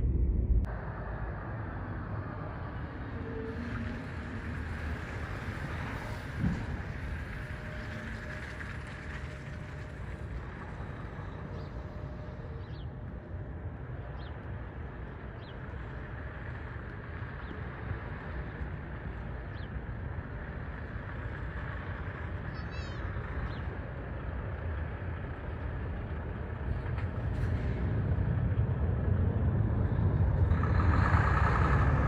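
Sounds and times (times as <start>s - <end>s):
distant jet engines rumbling: 0.0s - 32.0s.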